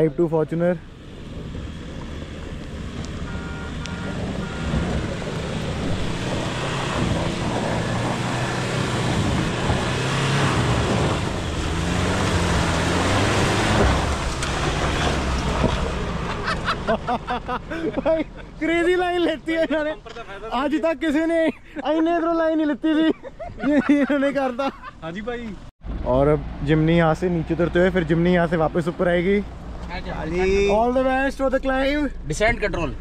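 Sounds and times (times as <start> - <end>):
diesel engine pulling under load: 0.9 - 18.6.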